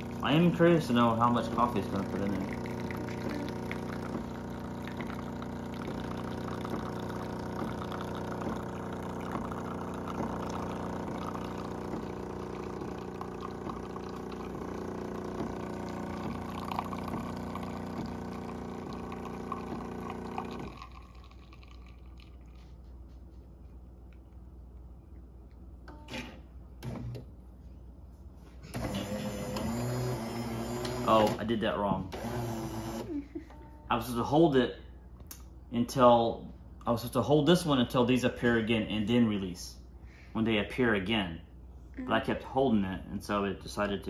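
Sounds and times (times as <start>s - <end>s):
espresso machine pump humming: 0.0s - 23.0s, 28.6s - 31.5s, 32.1s - 33.5s
coffee trickling: 0.0s - 23.1s.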